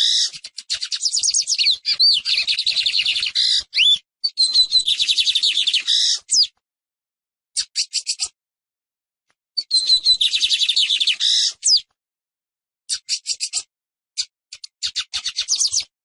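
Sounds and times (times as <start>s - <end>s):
bird singing high rapid notes: 0.0s - 6.6s, 9.6s - 11.9s, 12.9s - 15.9s.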